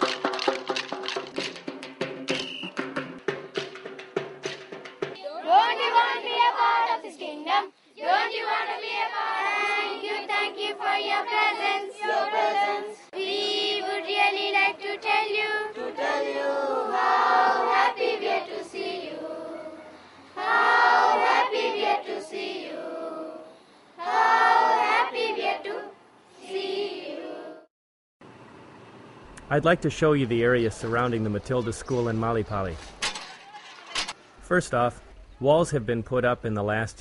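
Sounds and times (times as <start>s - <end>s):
children's choir singing: 5.2s - 27.7s.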